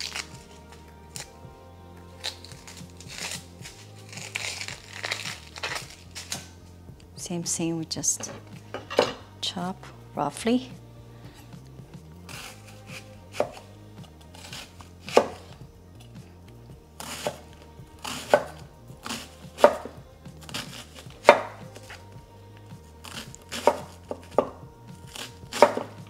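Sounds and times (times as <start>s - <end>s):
knife chopping on wooden board: 12.3s - 13.6s, 14.4s - 15.5s, 17.0s - 17.4s, 18.0s - 22.0s, 23.0s - 26.0s.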